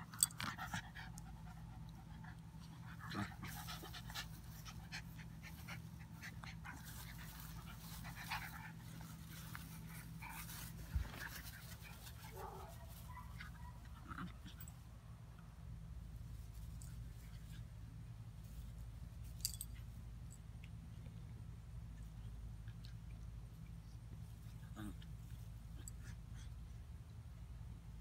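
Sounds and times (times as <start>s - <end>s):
steady low hum: 0.0s - 28.0s
puppies panting: 0.3s - 13.8s.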